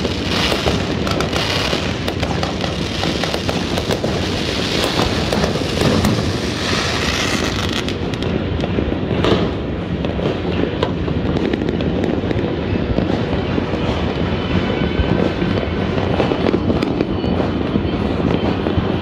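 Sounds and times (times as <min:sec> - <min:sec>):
fireworks banging and crackling: 0:00.0 - 0:19.0.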